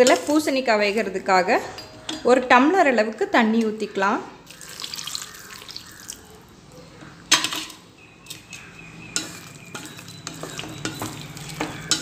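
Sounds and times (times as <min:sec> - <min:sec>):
wooden spoon scraping pot: 0:08.3 - 0:12.0.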